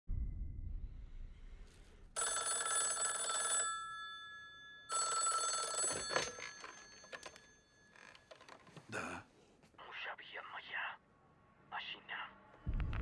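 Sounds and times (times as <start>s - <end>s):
telephone bell ringing: 2.2s - 8.8s.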